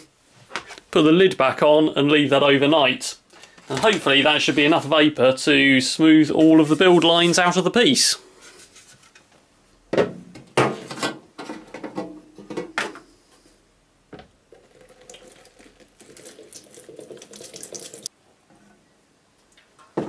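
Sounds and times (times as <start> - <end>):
liquid pouring into plastic tub: 14.5 - 18.1.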